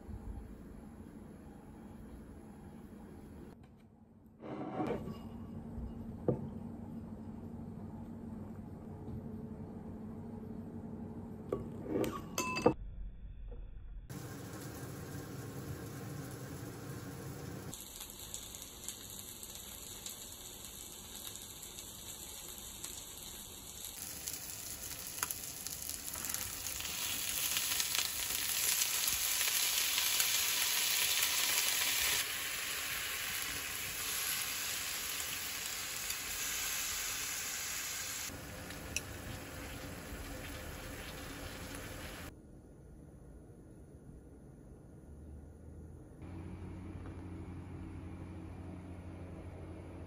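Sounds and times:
food sizzling in a frying pan: 14.1 - 42.3.

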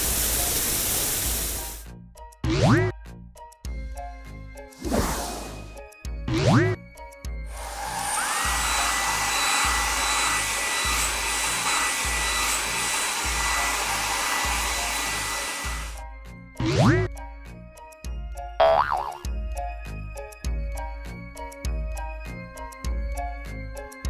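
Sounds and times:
background music with low pulse: 1.8 - 24.0
quick rising glide sound: 4.8 - 5.8
blowing air with whine: 7.5 - 16.0.

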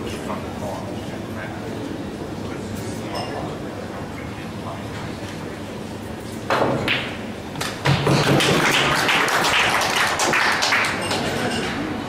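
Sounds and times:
pool balls knocking: 6.5 - 9.0
audience applauding: 8.3 - 11.4.

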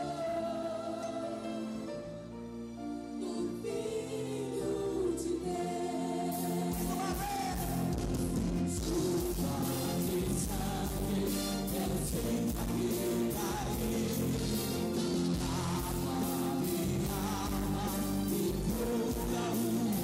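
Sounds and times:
women singing in harmony: 0.0 - 1.9, 3.1 - 7.0, 8.9 - 20.0
drums and bass beat: 6.7 - 20.0.

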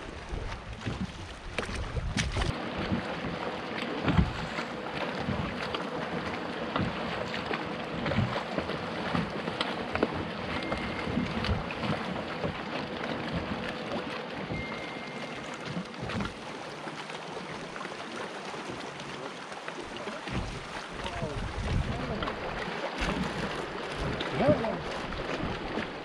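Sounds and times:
wind buffeting microphone: 0.0 - 3.1, 20.3 - 26.0
water lapping: 0.0 - 26.0.

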